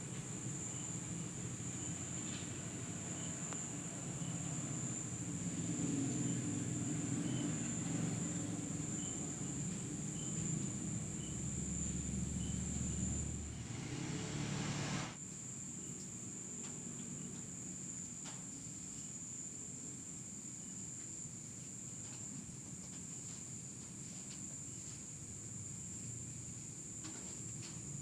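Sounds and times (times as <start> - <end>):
insects whining: 0.0 - 15.2
insect chirps: 0.2 - 14.5, 15.2 - 21.9.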